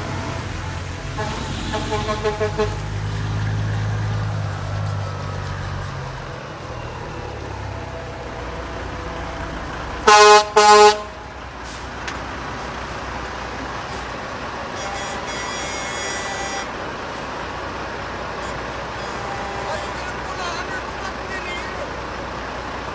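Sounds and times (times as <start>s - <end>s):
trucks rolling past: 0.0s - 22.9s
truck air horn blasts: 1.1s - 3.1s, 10.0s - 11.3s, 14.6s - 16.8s, 18.4s - 20.3s.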